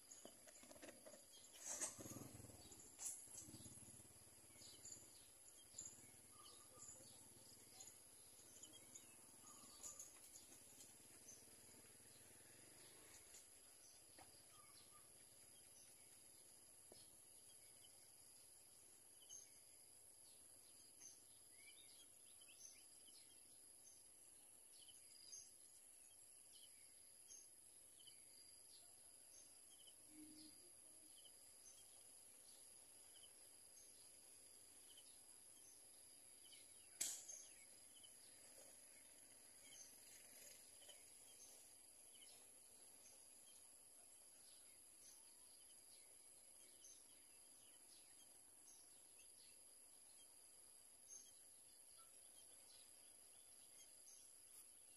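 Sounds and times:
sharp click: 37.0s - 37.4s.

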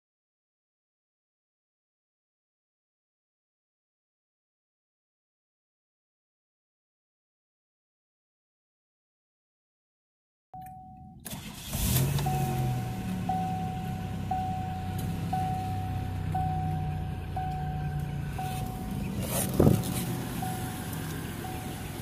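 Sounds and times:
warning chime tone: 10.6s - 11.3s, 12.2s - 19.1s, 19.7s - 22.0s
car engine cranking and idling: 10.6s - 22.0s.

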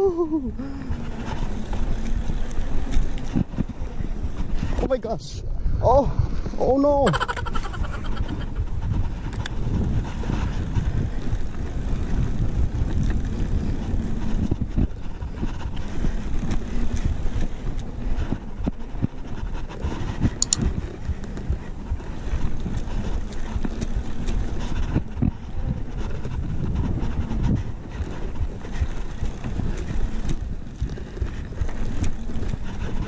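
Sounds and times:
bike clicks and rattles: 0.0s - 5.2s, 5.9s - 33.0s
bike tyres rumbling on concrete: 0.0s - 33.0s
wind buffeting microphone: 0.0s - 33.0s.

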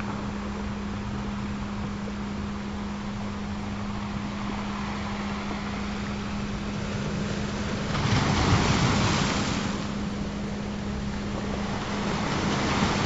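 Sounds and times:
ocean waves washing: 0.0s - 13.0s
steady low hum tone: 0.0s - 13.0s.

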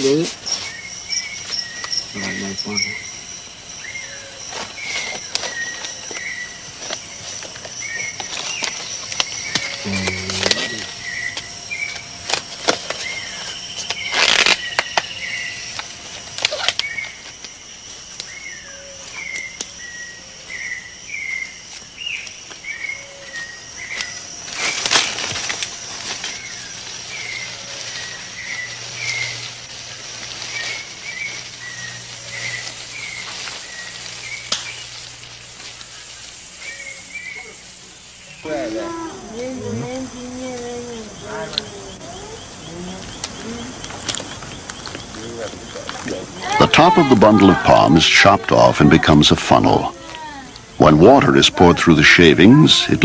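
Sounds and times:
high-pitched insect buzz: 0.0s - 53.0s
loud rustling crackles: 4.5s - 18.4s, 23.3s - 36.6s.

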